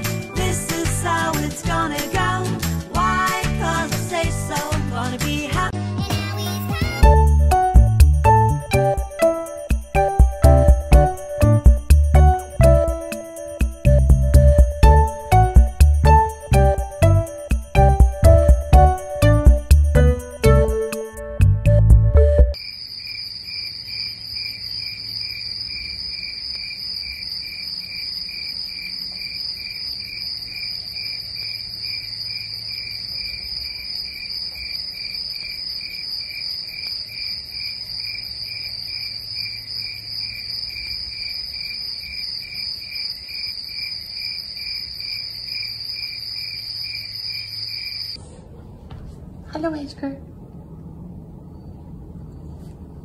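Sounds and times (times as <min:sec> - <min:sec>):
crickets chirping: 0:22.6 - 0:48.2.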